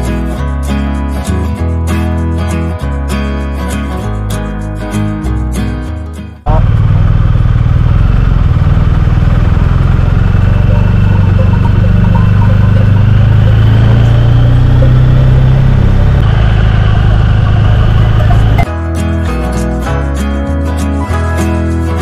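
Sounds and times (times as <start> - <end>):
motorcycle engine running: 6.4 - 18.7.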